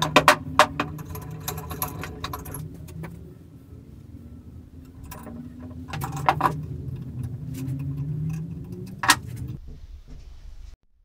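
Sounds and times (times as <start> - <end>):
vise handle metal clinks: 0.0 - 3.2
steady low hum: 0.0 - 10.8.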